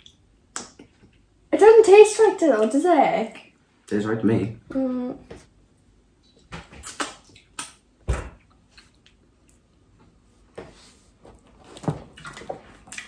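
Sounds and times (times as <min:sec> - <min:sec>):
wet smacking of fingers tasted: 0:00.0 - 0:01.3, 0:06.4 - 0:09.7.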